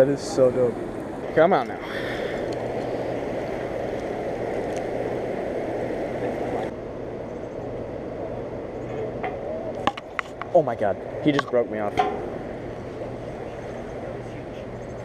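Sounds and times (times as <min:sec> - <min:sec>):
turbulent river water rushing: 0:01.9 - 0:06.7.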